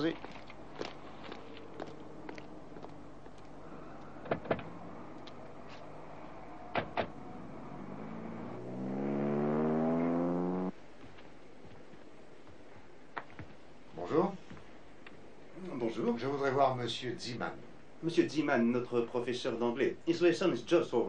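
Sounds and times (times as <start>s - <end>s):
car engine revving: 3.8s - 10.7s
car doors clunking shut: 4.2s - 4.8s, 6.7s - 7.2s.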